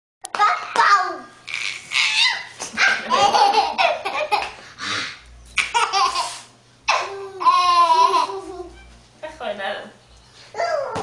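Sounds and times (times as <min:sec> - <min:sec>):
baby laughing: 0:01.5 - 0:04.6, 0:05.6 - 0:08.8.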